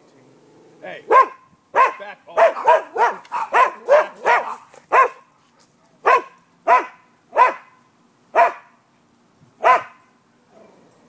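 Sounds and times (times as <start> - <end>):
dog barking: 1.1 - 5.3, 6.0 - 7.8, 8.4 - 8.7, 9.6 - 10.0.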